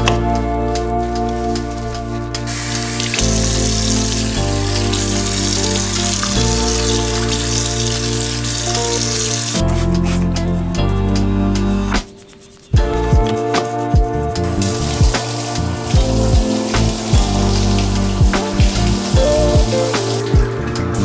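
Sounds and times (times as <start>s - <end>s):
background music: 0.0s - 21.0s
tap water running into sink: 2.5s - 9.6s, 14.7s - 20.3s.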